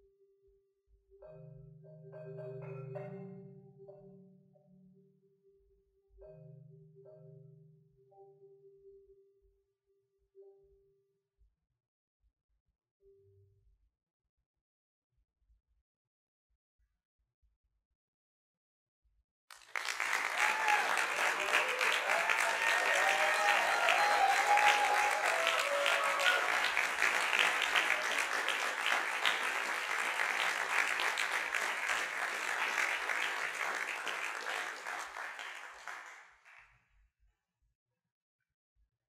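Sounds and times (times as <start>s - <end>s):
audience cheering: 19.5s - 36.2s
audience applauding: 19.5s - 36.5s.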